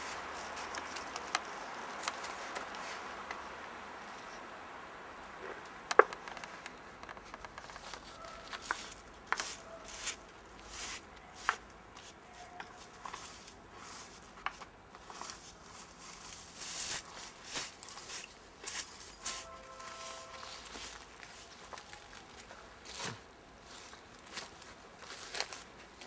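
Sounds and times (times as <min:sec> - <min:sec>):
hand sweeping leaves off stone: 0:08.4 - 0:23.8.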